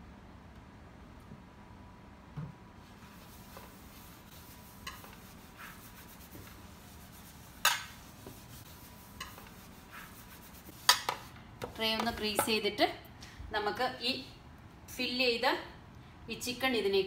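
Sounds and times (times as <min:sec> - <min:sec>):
tissue rubbing metal tray: 0:03.0 - 0:11.9.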